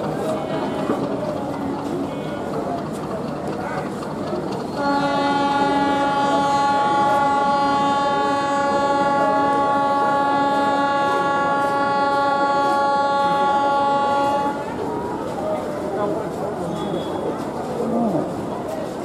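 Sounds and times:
locomotive horn blast: 0:04.7 - 0:14.8.

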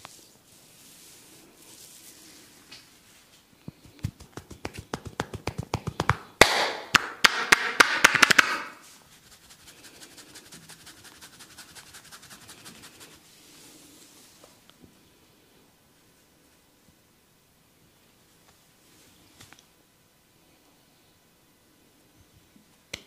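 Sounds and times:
hair rustling: 0:00.0 - 0:06.3, 0:08.8 - 0:13.3
palms tapping on head: 0:03.7 - 0:08.7.

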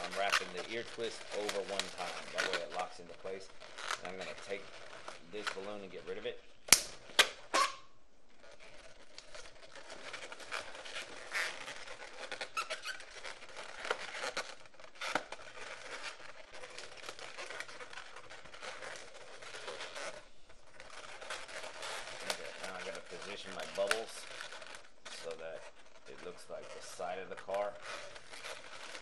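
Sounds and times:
balloons rubbing together: 0:00.0 - 0:29.0
balloon snap: 0:06.6 - 0:07.9.

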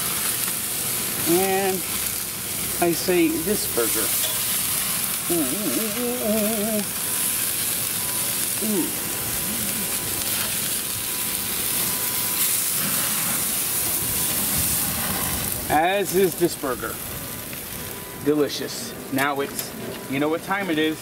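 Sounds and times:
meat patty sizzling on a grill: 0:00.0 - 0:21.0
person humming: 0:05.2 - 0:07.0, 0:08.6 - 0:09.8.

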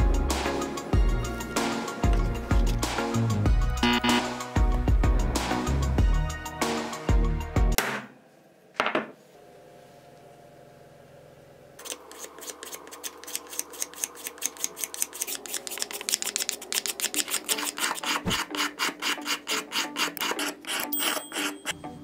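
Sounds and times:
glass scraping wooden dowel: 0:17.2 - 0:21.8.

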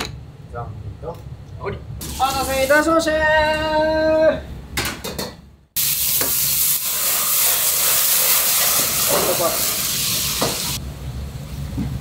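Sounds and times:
food frying in hot oil: 0:05.8 - 0:10.8.

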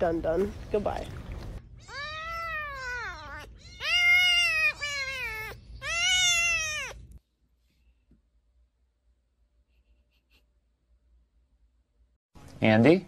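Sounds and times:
kitten mewing: 0:01.8 - 0:07.1.

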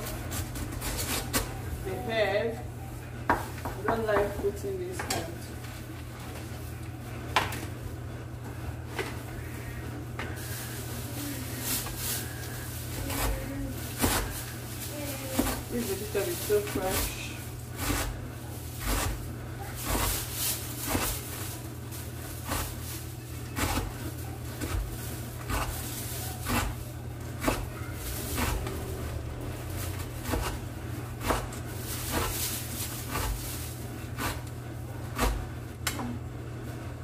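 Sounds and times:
steady low hum: 0:00.0 - 0:37.0
knife chopping on wooden board: 0:30.2 - 0:30.6, 0:31.2 - 0:32.4.

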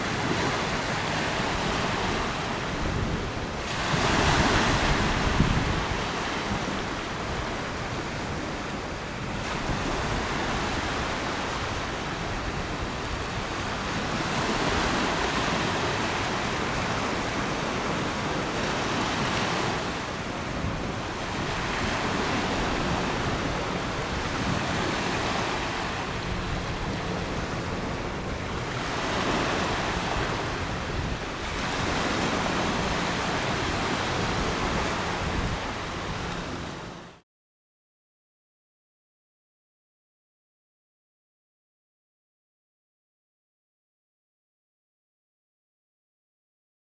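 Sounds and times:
wind buffeting microphone: 0:00.0 - 0:37.0
river waves rushing: 0:00.0 - 0:37.2.

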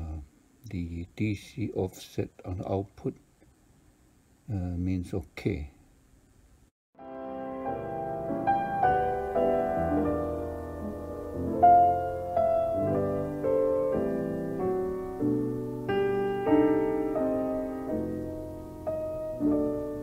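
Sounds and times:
slow piano melody: 0:07.0 - 0:20.0.

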